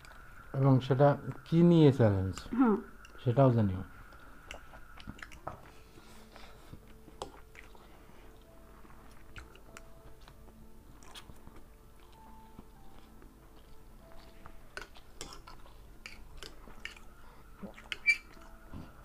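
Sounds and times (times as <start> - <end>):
chewing and slurping noodles: 4.5 - 19.0.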